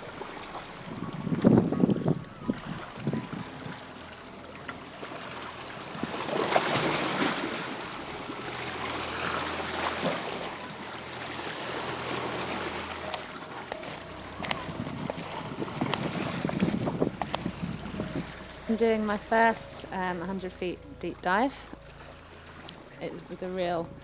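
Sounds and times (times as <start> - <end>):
sea water washing over rocks: 0.0 - 20.2.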